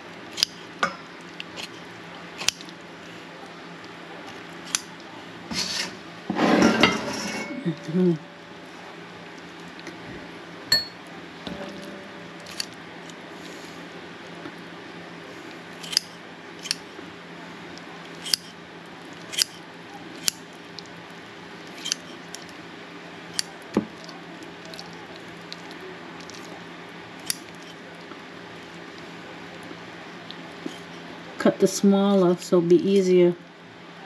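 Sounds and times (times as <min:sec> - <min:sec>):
steady low hum: 0:00.0 - 0:34.0
kitchen shears snipping: 0:00.3 - 0:00.6, 0:01.4 - 0:02.7, 0:04.6 - 0:06.0, 0:11.5 - 0:13.2, 0:15.8 - 0:16.8, 0:18.2 - 0:18.5, 0:19.2 - 0:19.6, 0:20.2 - 0:20.5, 0:21.7 - 0:22.6, 0:27.2 - 0:27.8, 0:30.6 - 0:31.0.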